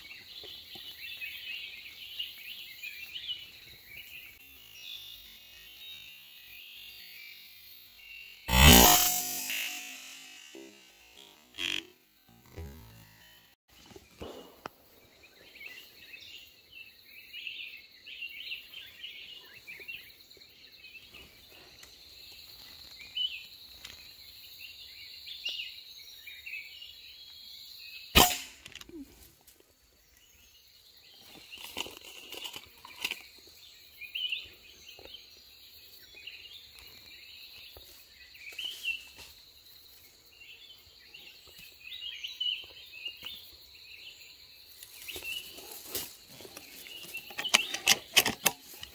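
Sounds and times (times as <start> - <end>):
high insect drone: 8.5 - 13.6
rifle shot: 28.2 - 28.6
birds chirping: 40.5 - 48.9.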